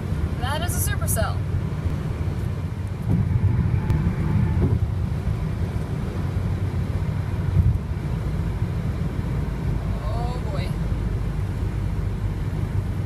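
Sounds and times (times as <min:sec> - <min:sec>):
wind noise: 0:01.8 - 0:08.5.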